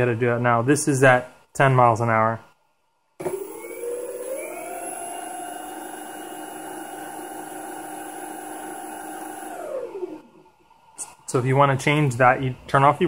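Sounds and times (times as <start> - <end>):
electric motor whine: 3.2 - 10.2.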